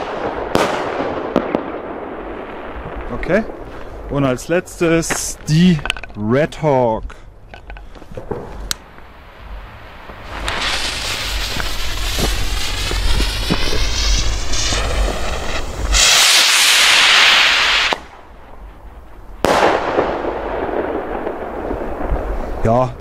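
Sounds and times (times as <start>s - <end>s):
firework bang: 0.0s - 4.0s, 8.2s - 22.5s
firework rocket hissing: 8.5s - 22.6s
rocket launch rushing hiss: 8.8s - 22.6s.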